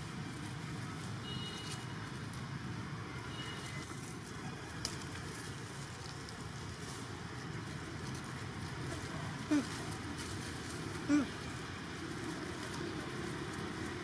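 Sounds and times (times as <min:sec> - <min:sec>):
low outdoor rumble: 0:00.0 - 0:14.0
faint crackles: 0:03.5 - 0:14.0.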